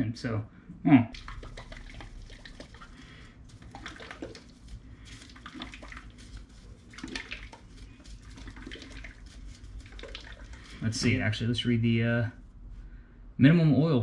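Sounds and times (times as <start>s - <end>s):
steady low hum: 0.0s - 14.0s
gloved hands rustling: 1.3s - 11.3s.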